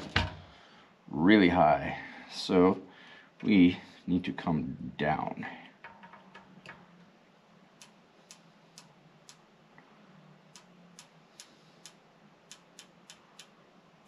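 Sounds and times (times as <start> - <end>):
faint detent clicks: 7.7 - 13.6.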